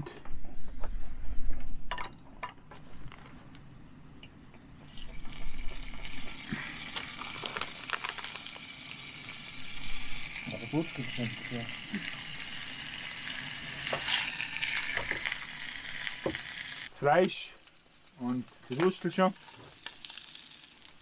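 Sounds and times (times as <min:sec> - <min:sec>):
sausages sizzling in a frying pan: 0:04.8 - 0:21.0.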